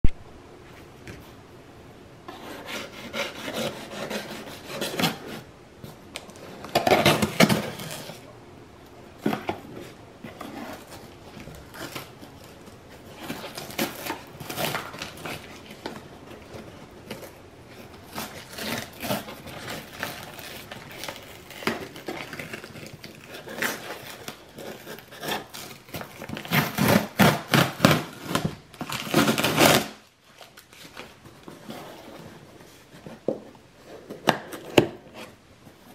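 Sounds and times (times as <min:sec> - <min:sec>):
knife sawing through cardboard: 0:02.3 - 0:05.4, 0:26.4 - 0:28.4.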